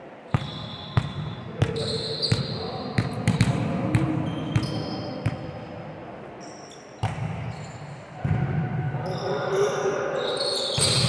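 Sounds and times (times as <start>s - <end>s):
volleyballs struck and bouncing: 3.0s - 5.5s.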